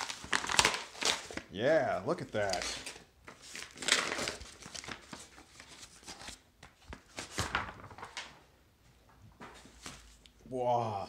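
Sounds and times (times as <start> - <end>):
paper mailer tearing: 3.6 - 5.0.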